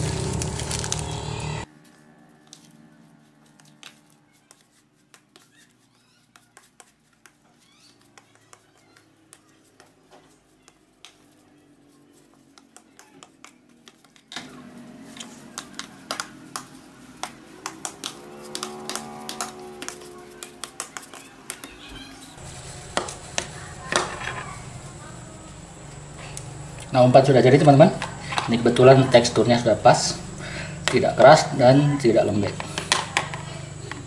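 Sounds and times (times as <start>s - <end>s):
hands kneading dough squishing: 0.0s - 24.0s.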